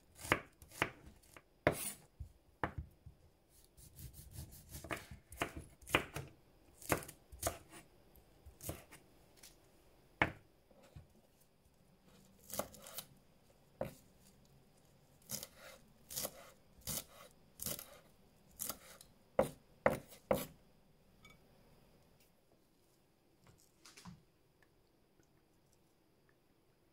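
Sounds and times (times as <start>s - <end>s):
knife chopping on wooden board: 0.2s - 2.0s, 2.6s - 2.8s, 3.9s - 7.8s, 8.6s - 9.0s, 15.3s - 18.0s, 18.6s - 20.5s.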